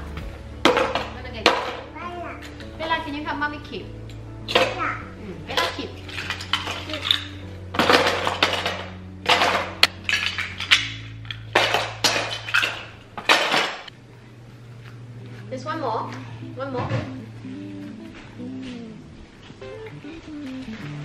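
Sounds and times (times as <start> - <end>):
toy blocks clattering into bin: 5.6 - 13.9.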